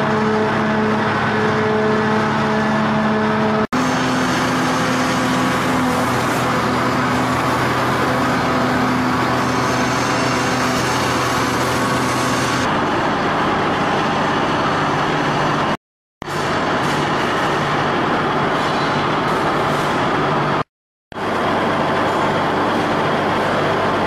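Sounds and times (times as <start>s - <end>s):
dredge machinery humming: 0.0s - 24.0s
cable winches running: 3.8s - 12.7s.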